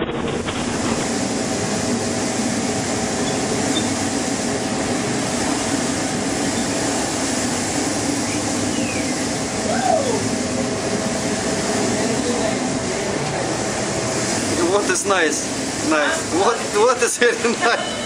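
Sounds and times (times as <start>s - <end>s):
heavy sea: 0.0s - 18.0s
ship machinery hum: 0.0s - 18.0s
short falling whistles: 8.2s - 10.1s.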